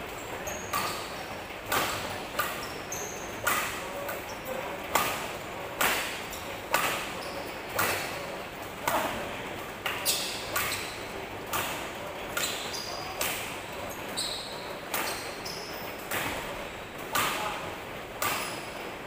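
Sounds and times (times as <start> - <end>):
shoes squeaking on floor: 0.3 - 4.6, 6.2 - 8.2, 9.9 - 11.7, 12.3 - 16.4, 18.2 - 18.9
racket smacking shuttlecock: 1.7 - 2.6, 3.4 - 4.2, 4.9 - 5.2, 5.8 - 7.1, 7.7 - 8.1, 9.8 - 10.9, 16.0 - 17.6, 18.2 - 18.7.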